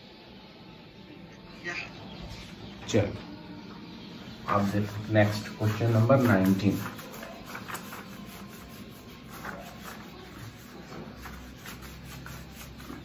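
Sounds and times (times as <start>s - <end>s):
duster wiping a whiteboard: 4.4s - 13.0s.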